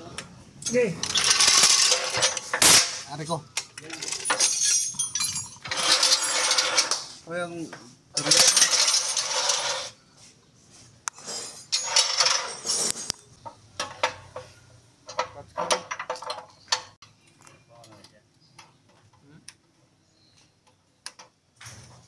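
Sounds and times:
metal tools clinking and rattling: 0:00.6 - 0:03.0, 0:03.6 - 0:07.1, 0:08.2 - 0:10.0, 0:11.2 - 0:17.0.

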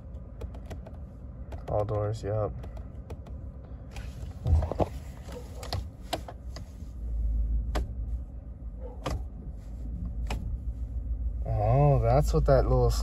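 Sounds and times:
steering wheel buttons clicking: 0:00.1 - 0:03.4, 0:04.7 - 0:06.8, 0:07.6 - 0:08.0, 0:08.9 - 0:09.3, 0:10.0 - 0:10.6.

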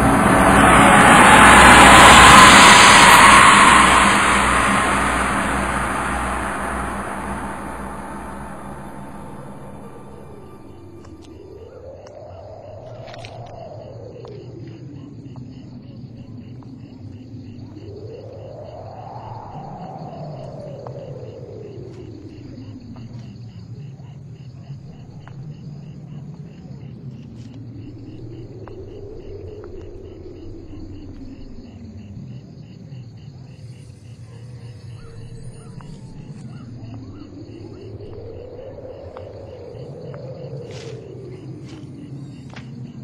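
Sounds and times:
gliding tone: 0:00.0 - 0:11.5
low steady hum: 0:00.0 - 0:11.7
high pulsing chirr: 0:00.0 - 0:11.8.

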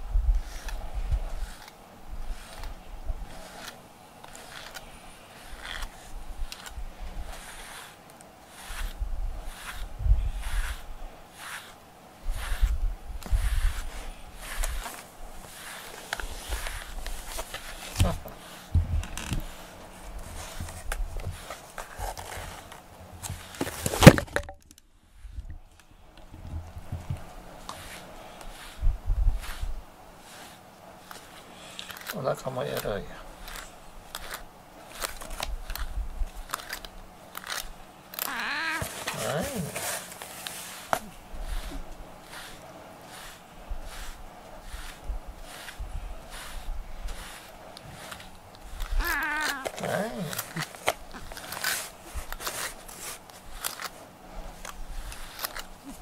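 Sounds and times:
brush scratching through fur: 0:00.1 - 0:23.8, 0:26.5 - 0:56.0
soft rustling and handling knocks: 0:12.4 - 0:24.8, 0:25.4 - 0:29.7
low bumps and rumble: 0:18.8 - 0:19.5.

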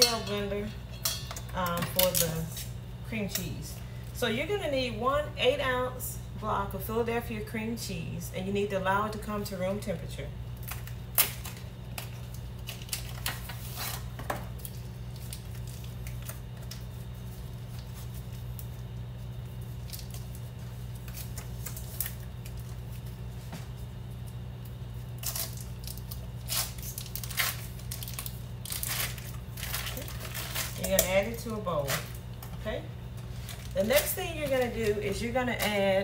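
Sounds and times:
steady low hum: 0:00.0 - 0:36.0
foil wrapper crinkling and tearing: 0:10.6 - 0:23.3, 0:23.9 - 0:32.5, 0:33.2 - 0:36.0.

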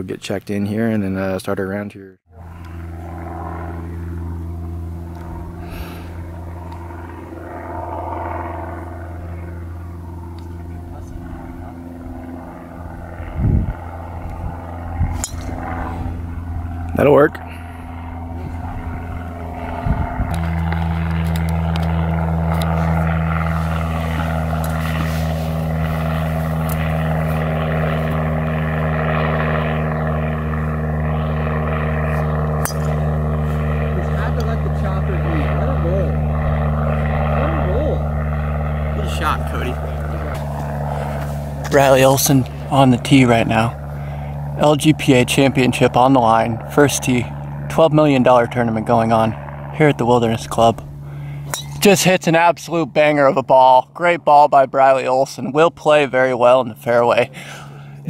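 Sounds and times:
low engine drone: 0:02.2 - 0:58.0
low mechanical hum: 0:02.3 - 0:58.0
golf driver striking ball: 0:32.6 - 0:33.0, 0:51.5 - 0:51.8.

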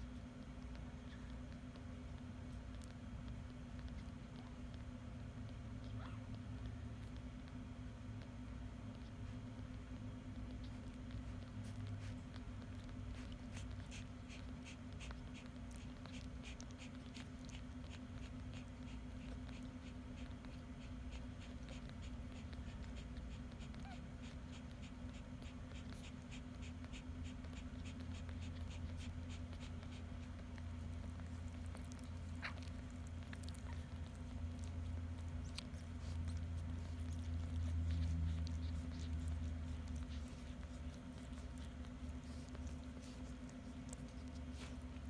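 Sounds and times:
puppies suckling wet clicks: 0:00.0 - 0:45.0.

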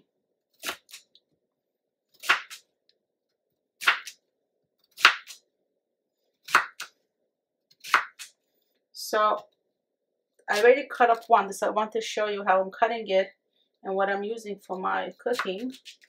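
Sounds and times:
cutter chopping on plastic board: 0:02.2 - 0:02.6, 0:03.8 - 0:04.2, 0:04.9 - 0:05.4, 0:06.5 - 0:06.9, 0:07.8 - 0:08.3.

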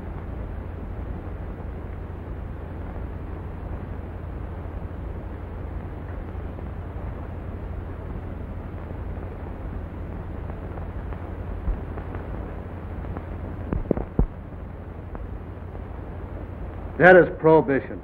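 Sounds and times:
film soundtrack hiss and hum: 0:00.0 - 0:18.0.

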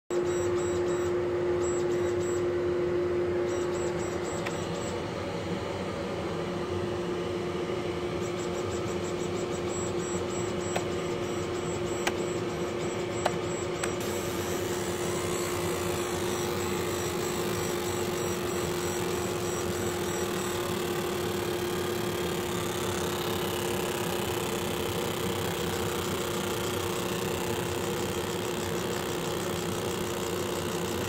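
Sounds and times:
laser engraver hum: 0:00.1 - 0:31.0
fan noise: 0:10.7 - 0:31.0
faint high whine: 0:13.9 - 0:31.0.

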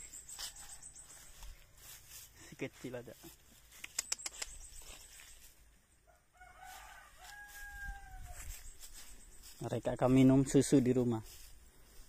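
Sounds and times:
faint rooster crowing: 0:06.0 - 0:09.1.

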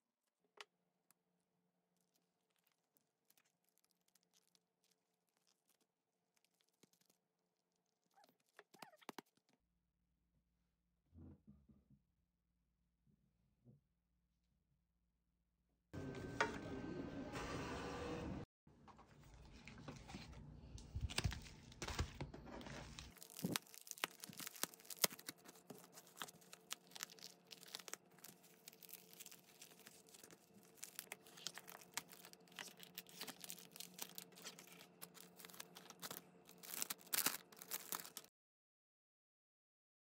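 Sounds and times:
plastic mailer crinkling and tearing: 0:01.8 - 0:09.4, 0:19.3 - 0:38.3.

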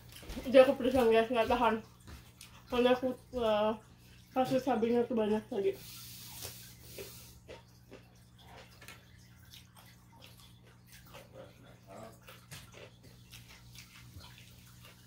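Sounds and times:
person chewing cucumber: 0:02.2 - 0:02.7, 0:05.9 - 0:15.0.

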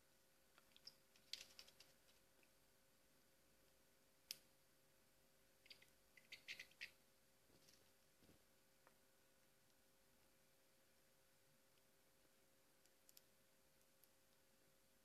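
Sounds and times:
birds pecking and tapping: 0:00.6 - 0:02.2, 0:05.6 - 0:07.0.

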